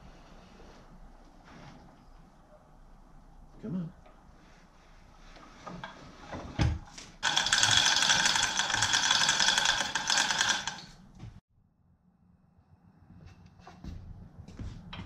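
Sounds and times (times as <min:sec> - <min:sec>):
chain hoist clattering: 0:07.2 - 0:11.0.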